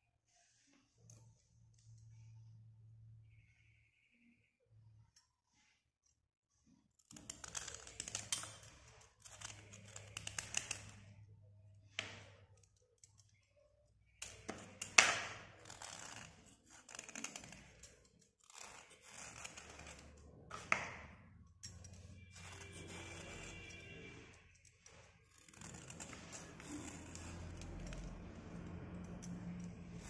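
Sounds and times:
knife blade scraping crust: 7.0s - 11.2s, 14.2s - 30.0s.

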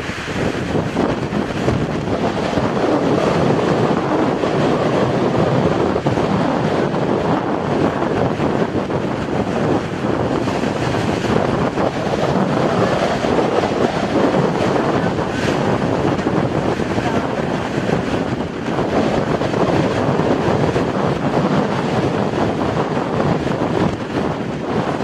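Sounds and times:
jet engines rushing: 0.0s - 25.0s
wind buffeting microphone: 0.0s - 25.0s.

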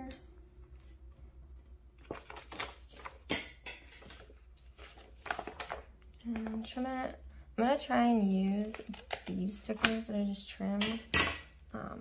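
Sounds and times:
paper rustling: 0.2s - 6.9s.

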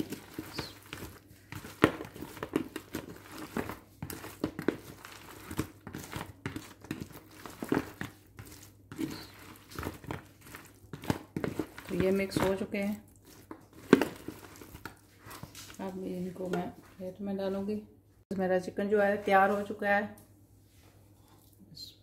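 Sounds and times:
spoon tossing sticky chicken wings: 0.0s - 16.6s.

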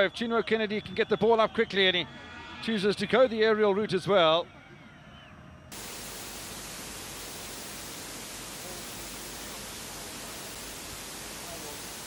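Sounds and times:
static hiss: 5.7s - 12.0s.

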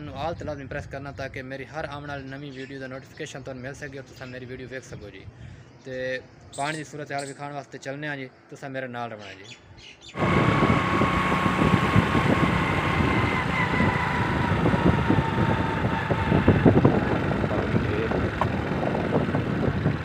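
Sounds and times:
wind buffeting microphone: 0.0s - 2.4s, 9.7s - 20.0s
vehicle running: 10.2s - 20.0s.

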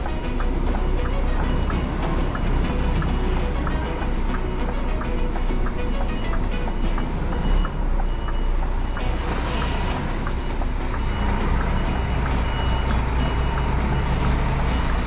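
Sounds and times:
truck diesel engine running: 0.0s - 15.0s
reversing alarm beeping: 6.8s - 15.0s.

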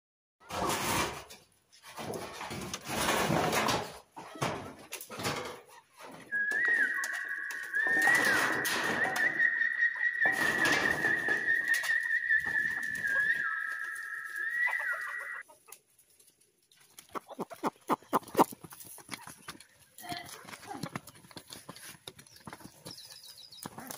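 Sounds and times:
chickens moving about: 0.4s - 23.9s
chickens pecking on feed sack: 1.9s - 9.5s, 10.3s - 13.8s, 15.4s - 23.9s
high whistle-like tone: 6.3s - 15.4s.

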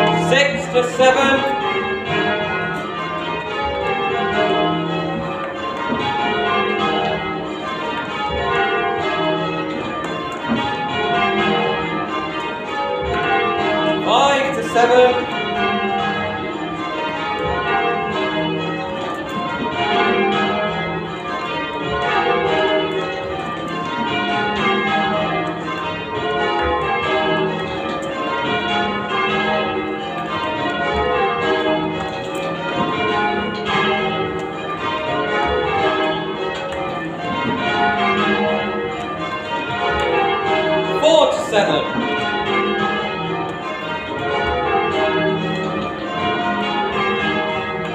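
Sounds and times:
church bells ringing: 0.0s - 47.9s.

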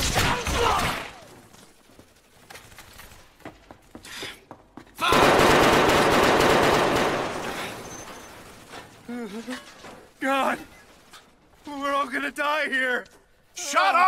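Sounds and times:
automatic gunfire: 5.1s - 7.6s.

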